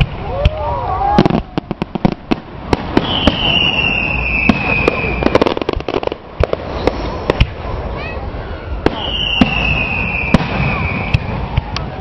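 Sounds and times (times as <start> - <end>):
fireworks bangs and crackles: 0.0 - 12.0
high firework whistle: 2.9 - 7.4, 8.5 - 12.0.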